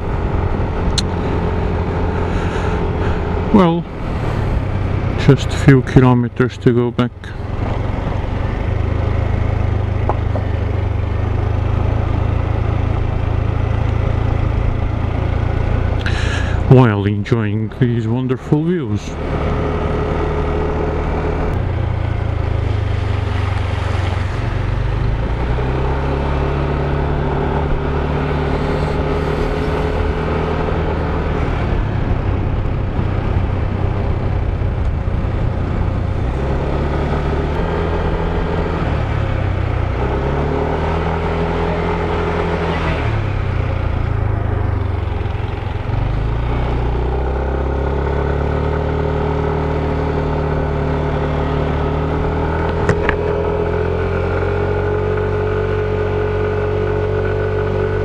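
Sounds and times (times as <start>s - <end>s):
steady rushing noise: 0.0s - 6.2s
motorcycle engine revving: 0.0s - 17.2s, 17.8s - 58.0s.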